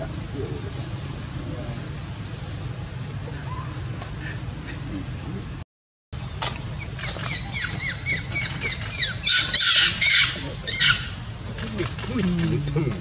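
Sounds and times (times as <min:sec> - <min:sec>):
macaque squeaking calls: 0:06.8 - 0:12.8
macaque screaming: 0:07.5 - 0:12.8.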